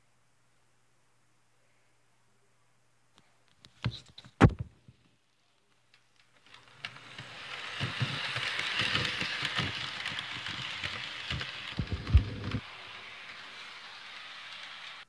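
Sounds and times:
model train motor whirring: 6.2s - 15.0s.

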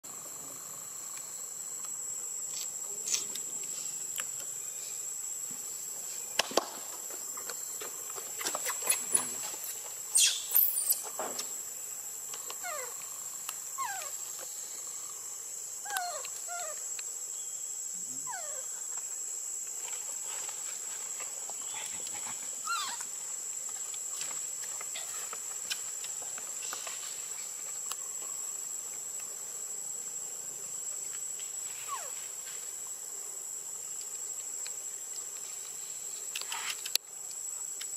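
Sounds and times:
high insect drone: 0.0s - 37.9s
baby monkey crying: 22.6s - 23.0s.

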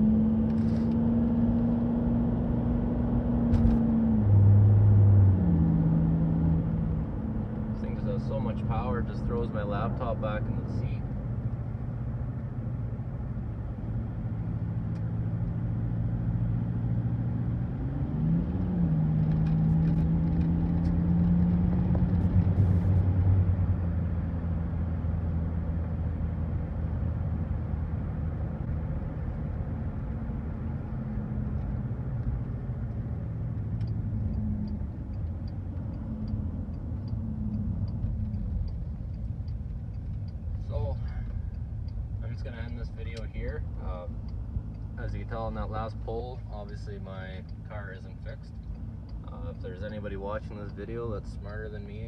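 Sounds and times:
diesel engine accelerating: 0.0s - 52.0s
road noise inside car: 0.0s - 52.0s
faint regular ticking: 31.5s - 52.0s.

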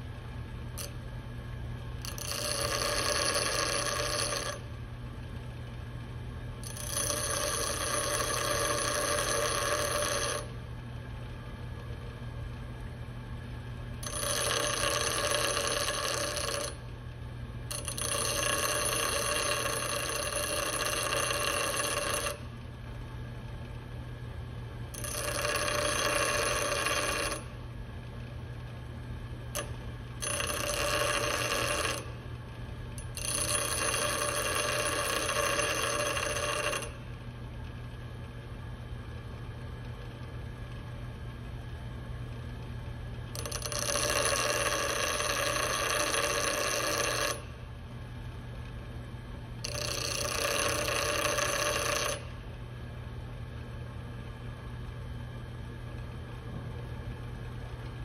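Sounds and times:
metal grinding on wheel: 2.0s - 4.6s, 6.7s - 10.5s, 14.0s - 16.7s, 17.7s - 22.4s, 25.0s - 27.4s, 30.2s - 32.1s, 33.1s - 36.9s
bench grinder motor humming: 6.6s - 10.5s, 14.0s - 16.8s, 25.0s - 27.5s, 30.2s - 32.1s, 49.6s - 52.3s.

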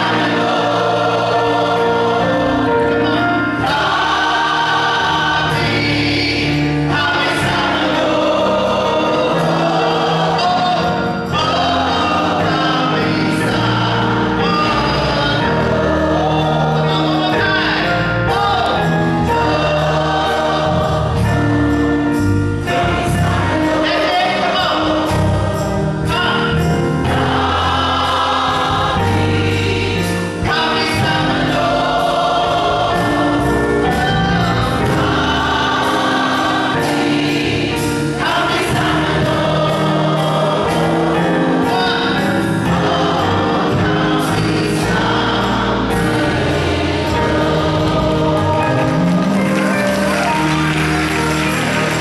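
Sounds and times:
gospel choir singing: 0.0s - 52.0s
keyboard accompaniment: 0.0s - 52.0s.

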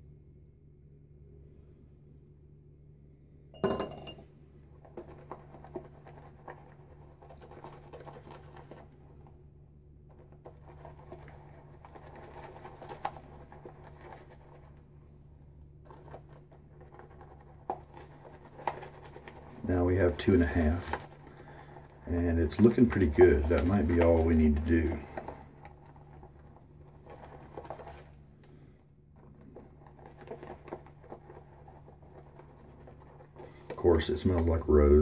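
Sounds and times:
shaving brush whisking lather: 4.8s - 9.4s, 10.1s - 35.0s.

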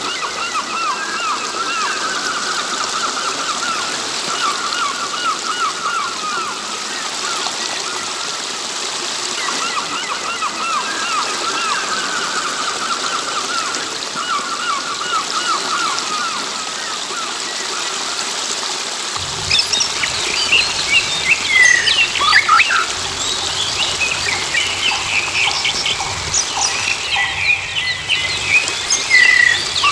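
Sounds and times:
stream water trickling: 0.0s - 29.9s
birds chirping: 19.2s - 29.9s.

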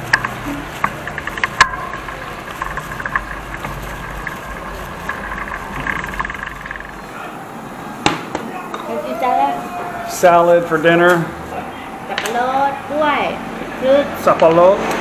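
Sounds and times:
rattling clicks: 0.0s - 7.1s
vehicle engine and road rumble: 0.0s - 7.4s.

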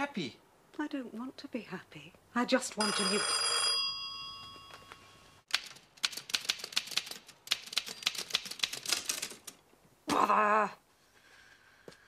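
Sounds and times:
typewriter bell ring: 2.8s - 5.2s
typewriter keys clacking: 5.5s - 9.6s.

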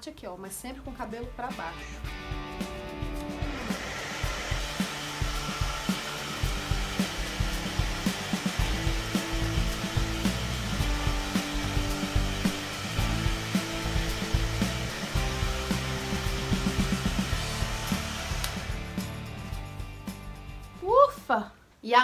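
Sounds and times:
hair dryer blowing: 3.0s - 19.6s.

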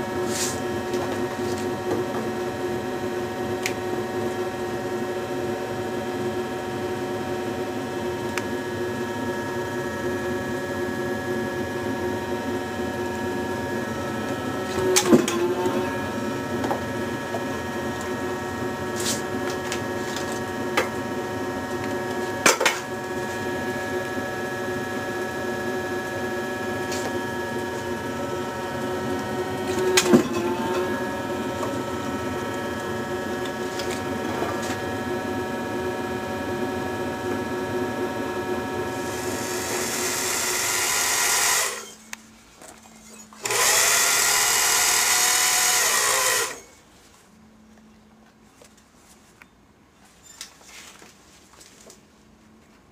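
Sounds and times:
press motor humming: 7.4s - 42.2s, 42.8s - 46.7s.

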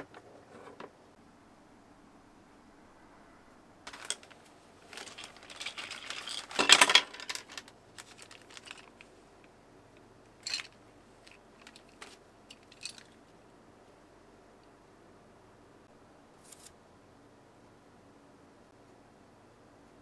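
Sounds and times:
rustling scrape: 3.9s - 9.0s
toy packaging clicks and crinkling: 3.9s - 9.1s, 10.4s - 13.2s.

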